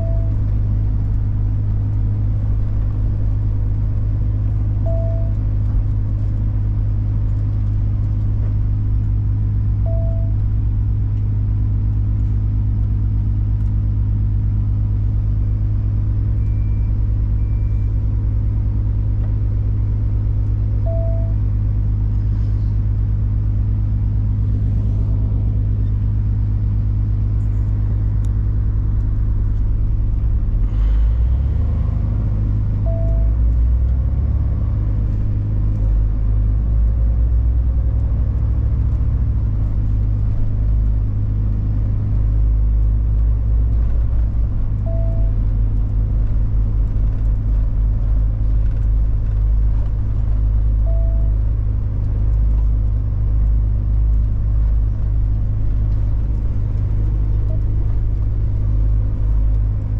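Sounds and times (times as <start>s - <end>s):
short beeps: 0.0s - 0.4s, 4.8s - 5.4s, 9.8s - 10.4s, 16.4s - 18.0s, 20.8s - 21.4s, 32.8s - 33.4s, 44.8s - 45.4s, 50.8s - 51.4s
truck diesel engine droning: 0.0s - 59.9s.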